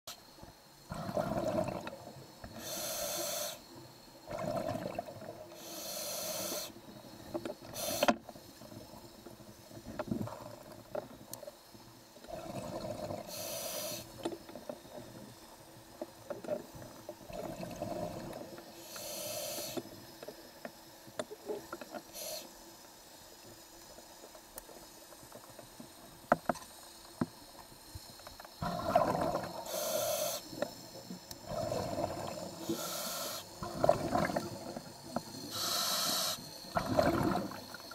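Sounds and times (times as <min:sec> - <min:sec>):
exhaled bubbles burbling: 0:00.9 - 0:02.1, 0:04.2 - 0:05.4, 0:12.3 - 0:13.4, 0:17.2 - 0:18.5, 0:28.6 - 0:29.7, 0:31.4 - 0:32.8, 0:33.6 - 0:35.3, 0:36.7 - 0:37.9
regulator inhalation hiss: 0:02.4 - 0:04.5, 0:05.5 - 0:09.7, 0:11.6 - 0:15.8, 0:17.9 - 0:21.1, 0:22.0 - 0:23.4, 0:26.7 - 0:37.9
small clicks and knocks: 0:23.8 - 0:28.6.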